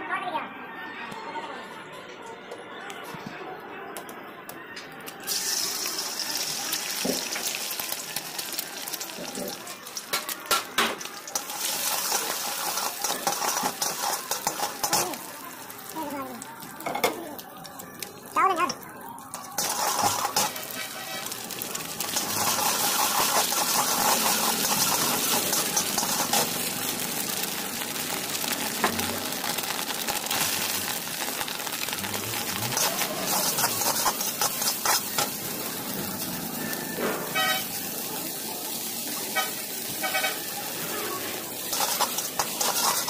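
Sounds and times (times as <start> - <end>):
food sizzling in a wok: 5.2 - 43.0
metal spatula scraping wok: 10.6 - 15.3, 19.3 - 27.3, 30.3 - 37.8, 39.3 - 43.0.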